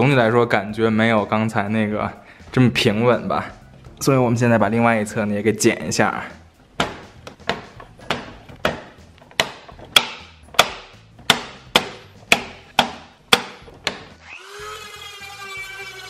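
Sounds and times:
rotary tool whining: 13.8s - 16.0s.

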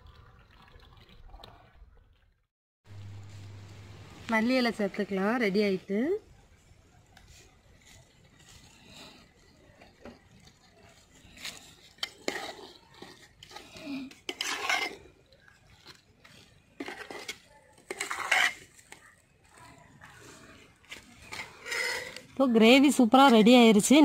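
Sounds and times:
metal spoon scraping a metal pot: 7.3s - 23.6s.

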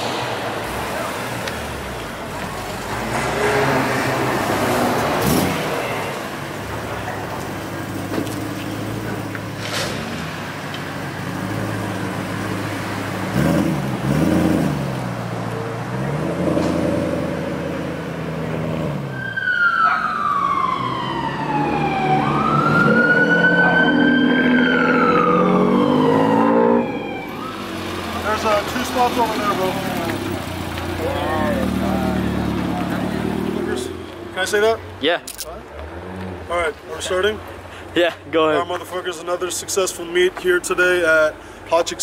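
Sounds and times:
car engines idling and revving: 0.0s - 42.0s
emergency siren wailing: 19.0s - 29.9s.

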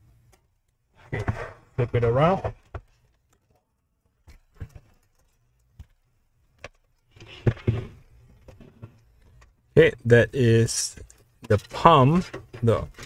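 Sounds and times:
computer case knocks and bumps: 7.3s - 9.0s.

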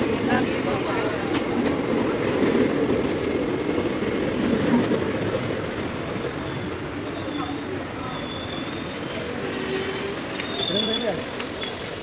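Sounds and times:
train wheels rumbling on rails: 0.0s - 12.0s
faint high squeal: 4.8s - 12.0s.

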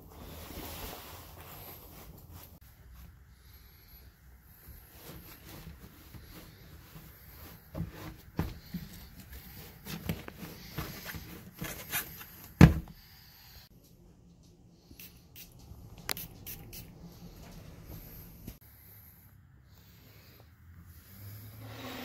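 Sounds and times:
shuffling steps on tile: 4.5s - 12.6s.

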